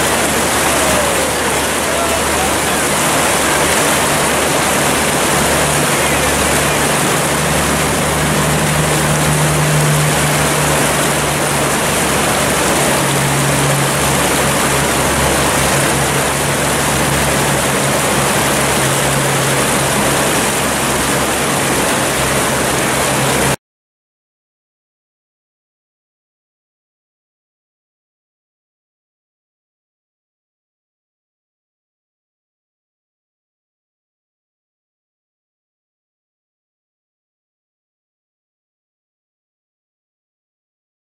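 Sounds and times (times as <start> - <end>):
river rapids rushing: 0.0 - 23.6.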